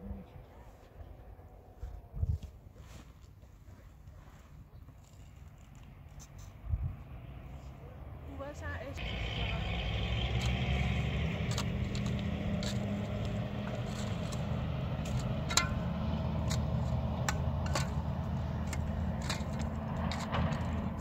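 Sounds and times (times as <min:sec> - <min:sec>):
low mechanical rumble: 0:05.0 - 0:21.0
sharp clicks and knocks: 0:11.4 - 0:21.0.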